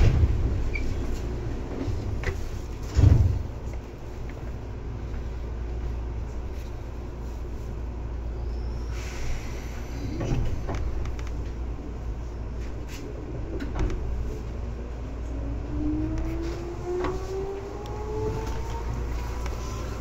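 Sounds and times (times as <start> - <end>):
train rumbling: 0.0 - 20.0
train motor whine rising: 15.3 - 20.0.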